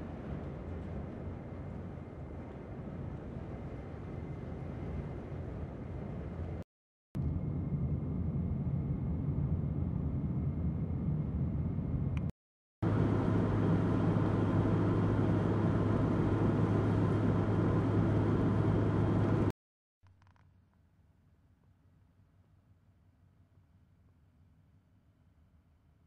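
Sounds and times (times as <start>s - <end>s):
steady low hum: 7.2s - 19.5s
car engine and tyre noise: 12.8s - 19.5s.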